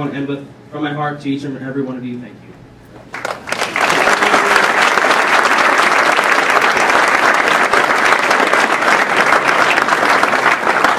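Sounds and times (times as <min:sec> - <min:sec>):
audience applauding: 0:03.1 - 0:10.9.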